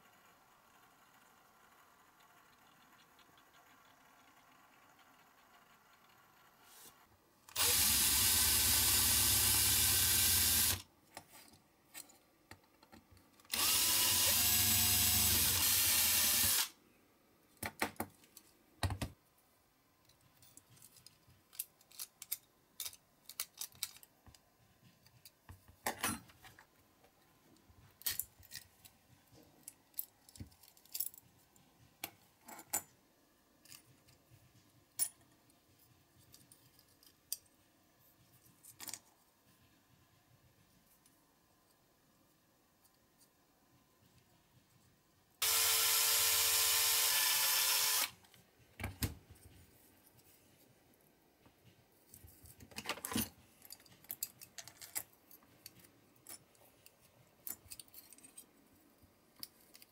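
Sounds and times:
cordless drill drilling: 0:07.5 - 0:10.8, 0:13.5 - 0:16.7, 0:45.4 - 0:48.2.

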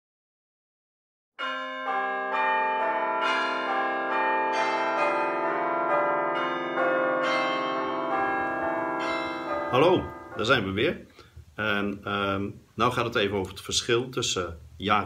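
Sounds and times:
bells ringing in a peal: 0:01.4 - 0:10.8.

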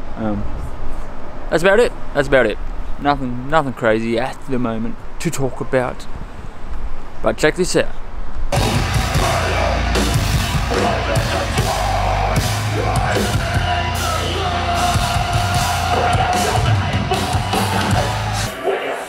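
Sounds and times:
heavy metal band playing: 0:08.5 - 0:19.0.

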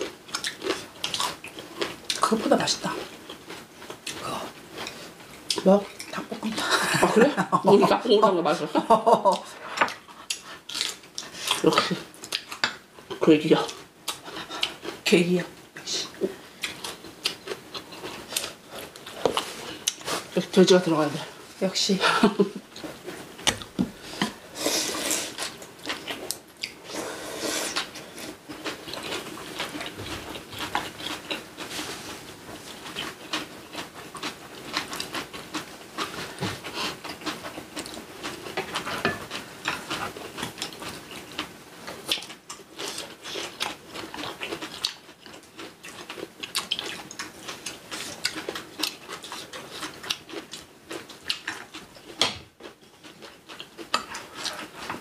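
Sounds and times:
cutlery clicking and scraping dishes: 0:38.6 - 0:40.0.

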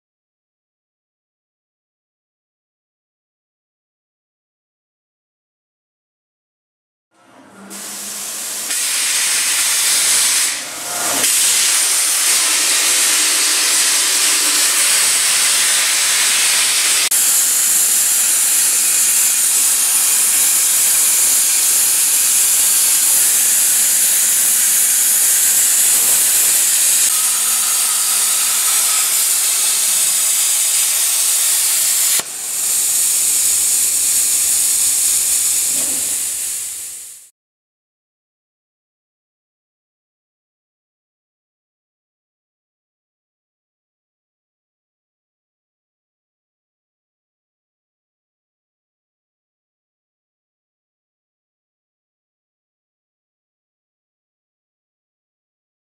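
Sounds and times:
plasma torch hissing: 0:07.7 - 0:37.3.

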